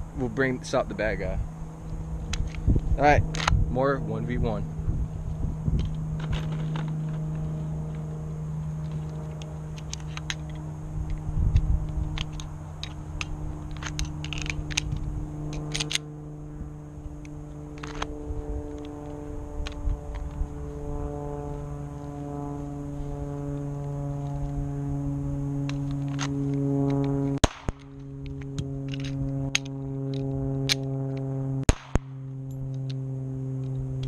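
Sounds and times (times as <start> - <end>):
low droning hum: 0.0 - 34.0
pistol metallic clicks: 3.3 - 3.6, 8.8 - 16.1, 25.7 - 33.0.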